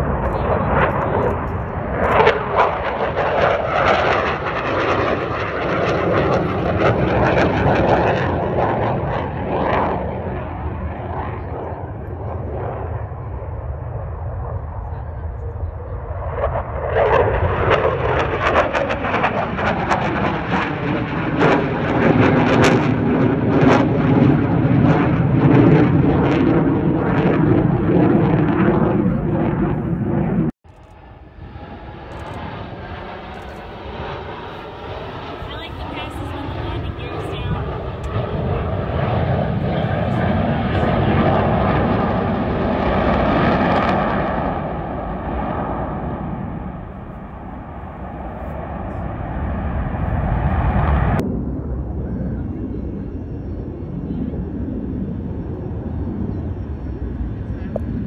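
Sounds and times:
loud rumbling jet overhead: 0.0s - 58.0s
steady jet sound: 25.3s - 51.4s.

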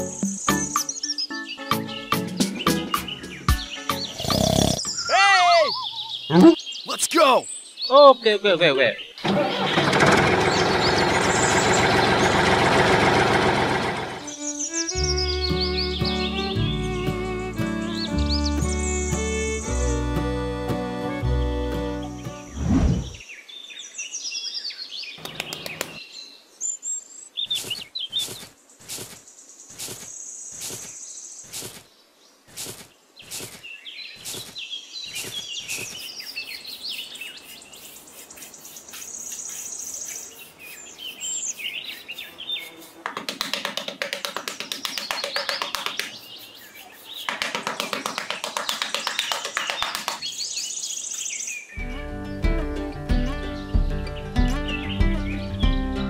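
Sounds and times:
birds chirping: 0.0s - 12.9s, 13.7s - 56.0s
hand trowel scraping sand: 27.5s - 31.8s, 32.5s - 50.2s.

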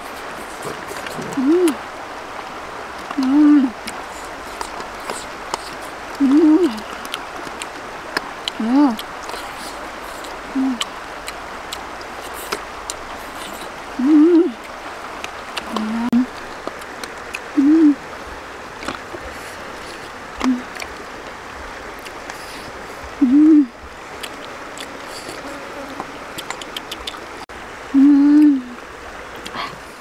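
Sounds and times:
rushing stream: 0.0s - 30.0s
low hooting calls: 22.4s - 23.8s.

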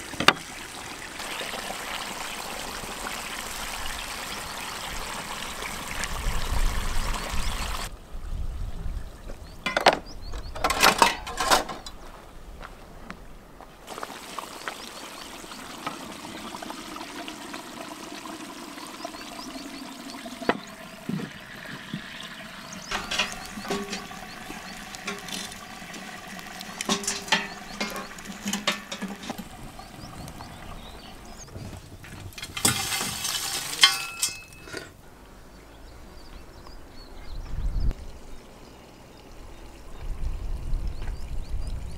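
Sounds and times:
running water: 0.0s - 7.9s, 13.8s - 35.0s
utensils clattering: 9.7s - 12.0s, 20.6s - 30.0s, 32.2s - 35.0s
utensils clicking and knocking: 22.9s - 29.5s.

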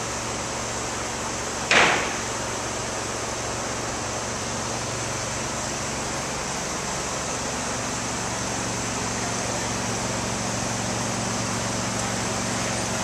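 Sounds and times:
city street background hum: 0.0s - 13.0s.

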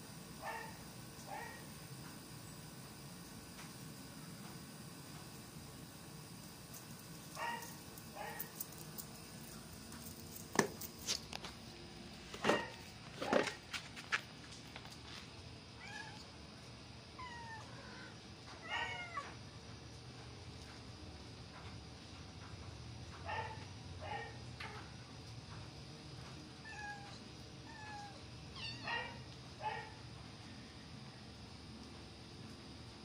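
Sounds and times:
cat meowing: 15.8s - 16.2s, 17.2s - 19.4s, 26.6s - 29.2s.

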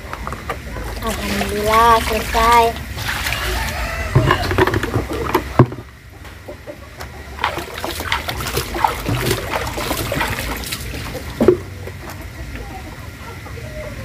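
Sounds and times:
chickens clucking: 0.0s - 14.0s
water splashing and trickling: 0.8s - 5.6s, 7.3s - 12.4s
water poured into bucket: 1.0s - 3.8s, 7.4s - 11.5s.

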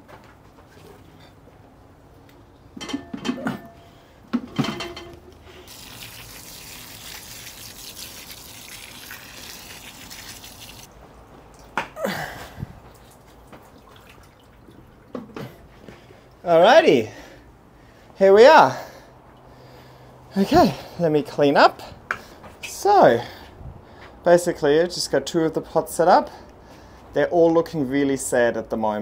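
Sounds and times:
handling knocks and clunks: 2.7s - 5.4s
hose nozzle spraying water: 5.6s - 10.9s.

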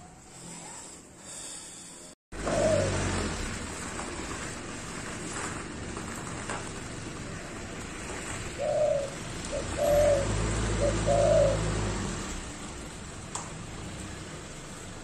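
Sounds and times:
dove cooing: 2.4s - 3.6s, 8.4s - 12.4s.

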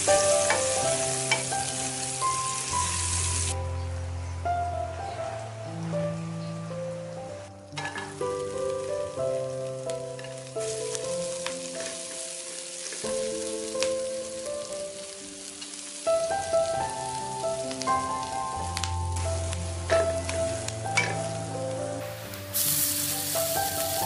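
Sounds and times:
onion and garlic sizzling in oil: 0.0s - 3.9s, 7.6s - 24.0s
background music with sustained notes: 0.0s - 24.0s
spatula scraping a frying pan: 7.8s - 8.2s.

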